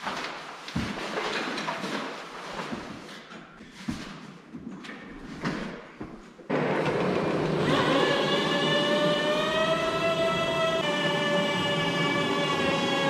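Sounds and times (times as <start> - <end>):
forklift engine running: 6.5 - 13.0
hydraulic lift whine: 6.5 - 13.0.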